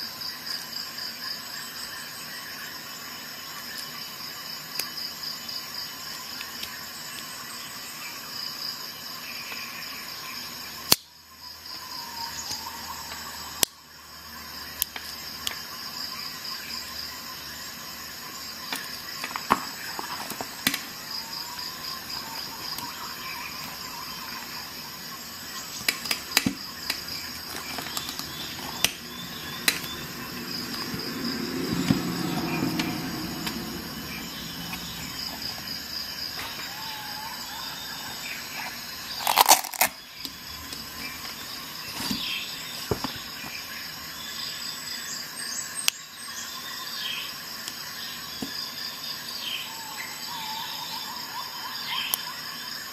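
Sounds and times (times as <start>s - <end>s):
faint pulsing high chirr: 20.9s - 39.2s.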